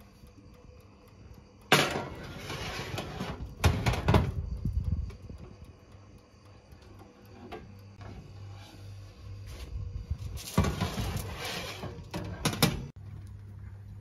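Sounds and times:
steady low hum: 0.0s - 14.0s
tray clacks: 1.6s - 5.2s
baking tray scraping rattle: 1.7s - 4.4s, 7.4s - 12.9s.

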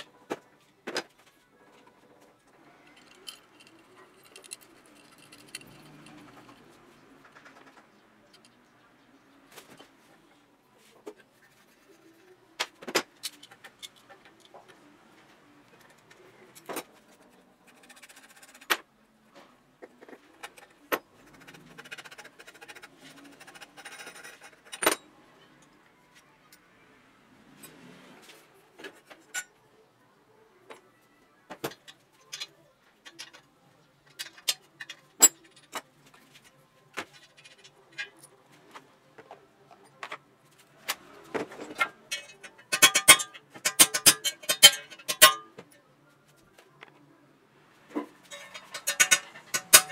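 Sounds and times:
metal bicycle parts clinking: 2.8s - 6.7s, 31.7s - 36.4s, 37.0s - 38.4s, 41.3s - 45.7s, 48.0s - 49.9s
soft rattling: 48.3s - 49.9s.

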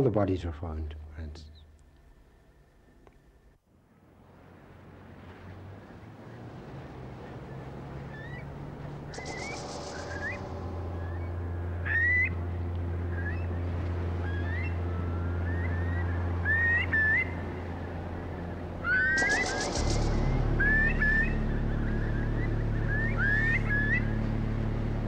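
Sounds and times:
steady low hum: 5.8s - 25.0s
birds whistling calls: 7.2s - 24.2s
bird rattle call: 9.1s - 11.2s, 19.0s - 20.7s.

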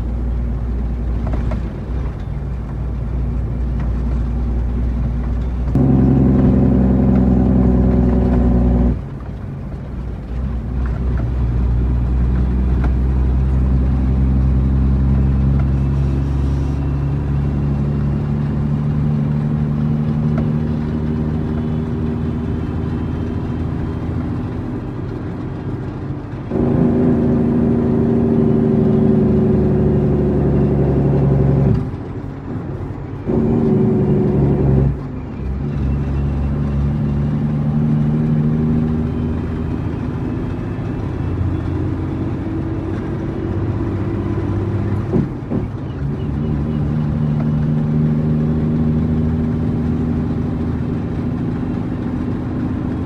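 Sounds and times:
truck diesel engine droning: 0.0s - 53.0s.

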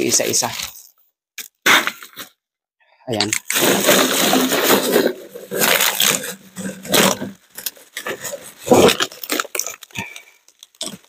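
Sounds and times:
plastic garbage bag crinkling: 3.4s - 11.0s.

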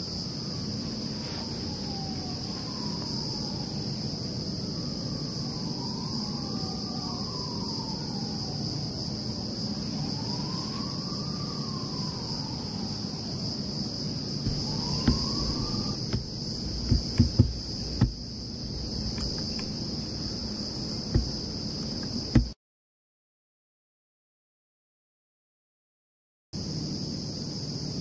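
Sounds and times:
insects chirring: 0.0s - 22.6s, 26.6s - 28.0s
distant siren wailing: 0.2s - 22.6s
low background rumble: 14.4s - 22.6s.

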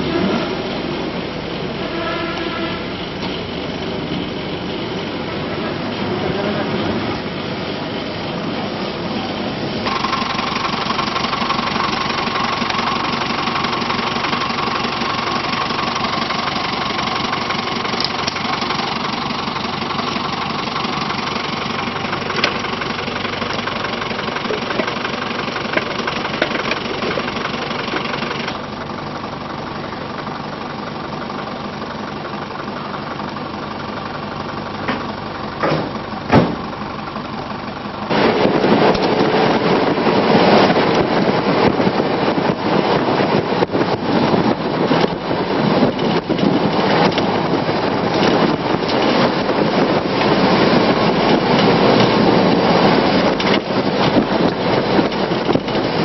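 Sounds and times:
steady whine: 0.0s - 56.0s
vehicle engine and road noise: 0.0s - 56.0s
sharp knocks: 35.6s - 36.6s.

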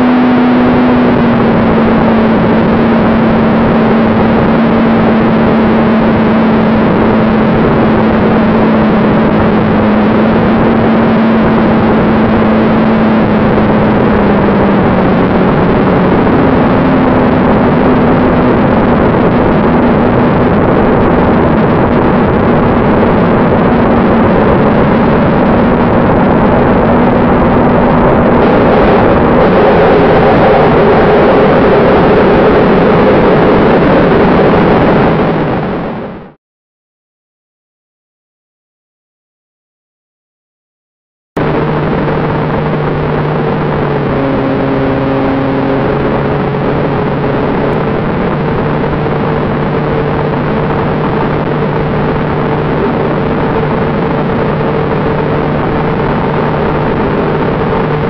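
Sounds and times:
fan motor whine: 0.0s - 36.0s, 41.4s - 58.0s
rush of air: 0.0s - 36.1s.

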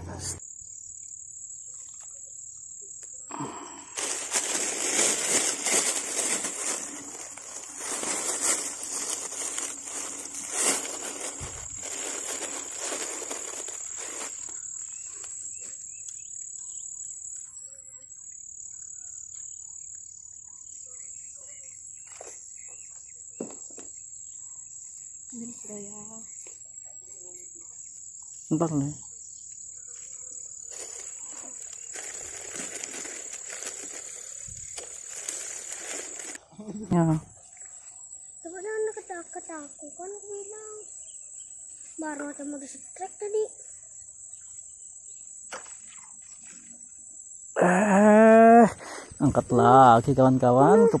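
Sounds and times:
high-pitched insect trill: 0.4s - 51.0s
rustling: 3.3s - 15.7s, 30.6s - 36.4s
small clicks and chirps: 14.5s - 16.6s.

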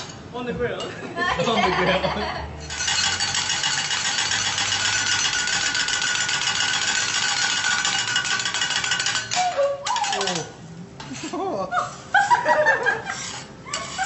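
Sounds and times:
metal spatulas clattering on griddle: 2.6s - 11.3s, 12.7s - 14.0s.

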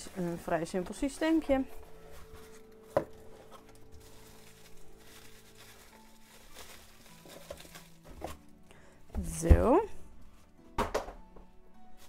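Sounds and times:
bubble wrap crinkling: 0.0s - 8.6s.

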